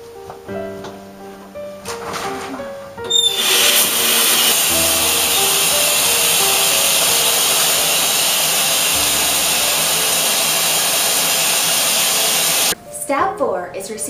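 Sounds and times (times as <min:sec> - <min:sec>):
faint music: 0:00.0 - 0:11.3, 0:12.7 - 0:14.0
shower water spray hissing: 0:03.1 - 0:12.8.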